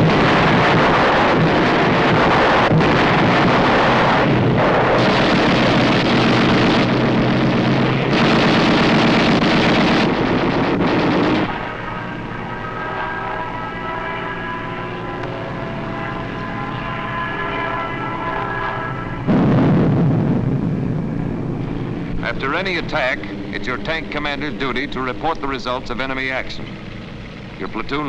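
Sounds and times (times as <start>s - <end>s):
gunfire: 0.0s - 12.0s
bomb explosions: 0.0s - 13.7s, 18.1s - 26.6s
propeller aircraft engine drone: 0.0s - 28.0s.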